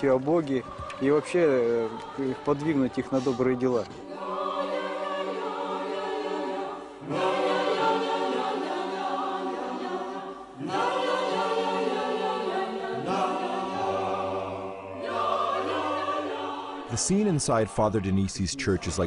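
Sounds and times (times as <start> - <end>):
choir singing unaccompanied chant: 0.0 - 19.0.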